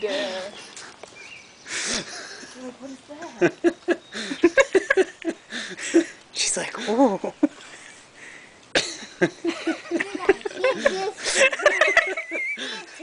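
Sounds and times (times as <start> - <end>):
people laughing: 1.7 - 6.1, 8.8 - 13.0.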